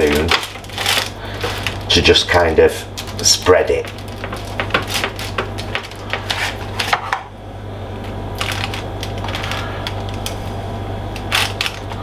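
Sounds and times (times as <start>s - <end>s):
low hum: 3.8s - 12.0s.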